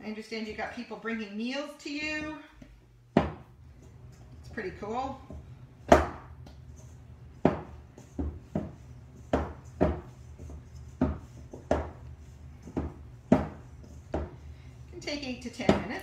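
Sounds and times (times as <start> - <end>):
dough thumping in metal bowl: 3.1 - 3.5, 4.4 - 6.7, 7.3 - 14.4, 15.0 - 16.0.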